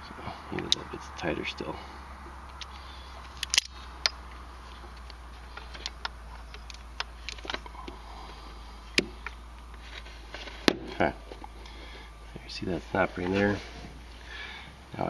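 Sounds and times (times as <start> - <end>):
steady low hum: 0.0 - 15.0
metallic clicks of hand tools: 3.3 - 4.2.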